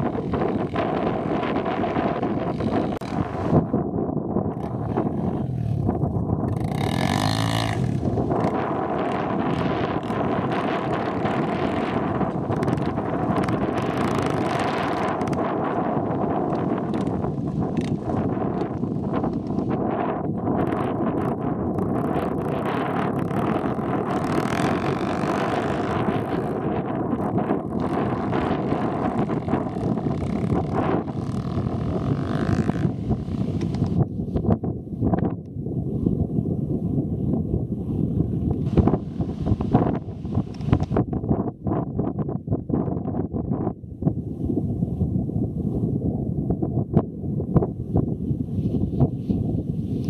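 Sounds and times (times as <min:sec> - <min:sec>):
dirt bike engine running: 0:00.0 - 0:34.1
wind buffeting microphone: 0:00.0 - 0:50.0.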